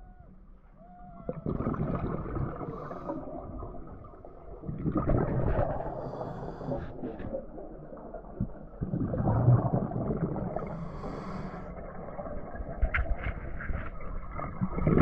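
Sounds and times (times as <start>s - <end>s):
exhaled bubbles rushing: 1.3s - 15.0s.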